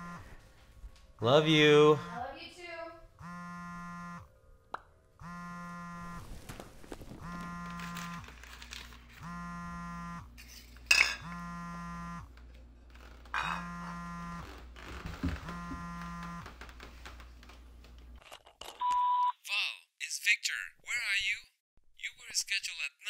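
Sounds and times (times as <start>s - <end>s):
phone vibrating on tile floor: 0.0s - 0.4s, 1.9s - 2.3s, 3.2s - 4.3s, 5.2s - 6.3s, 7.1s - 8.4s, 9.2s - 10.4s, 11.1s - 12.4s, 13.3s - 16.8s.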